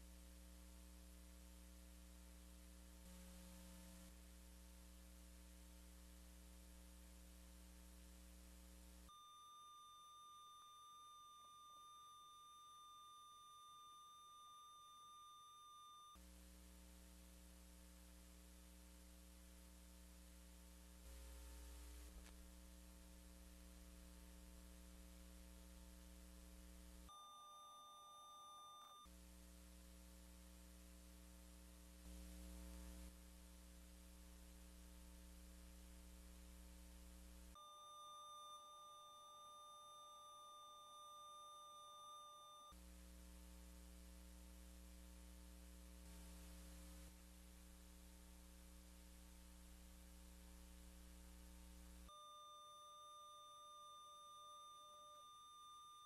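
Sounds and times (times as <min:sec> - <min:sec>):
faint electrical hum: 0:00.0 - 0:56.0
faint high-pitched tone: 0:09.0 - 0:16.2, 0:27.0 - 0:29.2, 0:37.5 - 0:42.9, 0:51.4 - 0:56.0.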